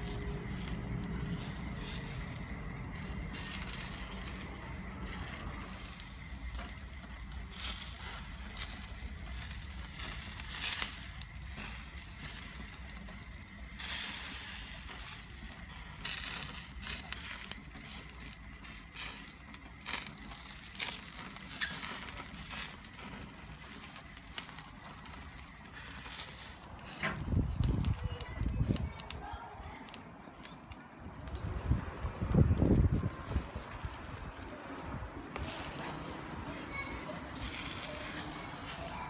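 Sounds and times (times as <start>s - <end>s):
low rumble: 0.0s - 7.5s, 31.0s - 35.3s
fat crackling and popping: 0.0s - 39.0s
meat sizzling over charcoal: 0.0s - 39.0s.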